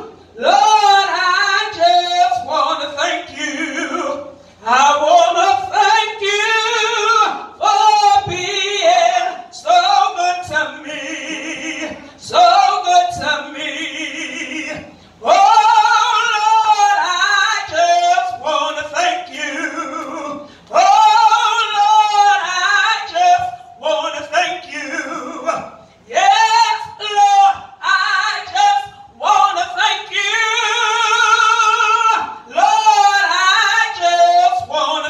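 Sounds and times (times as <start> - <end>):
woman singing gospel song: 0.0 - 35.0
singer breathing: 14.9 - 15.2, 20.4 - 20.7.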